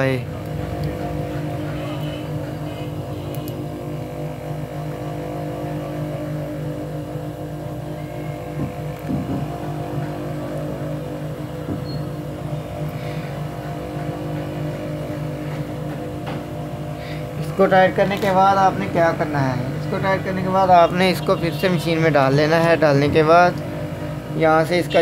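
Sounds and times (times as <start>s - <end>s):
sewing machine motor hum: 0.0s - 25.0s.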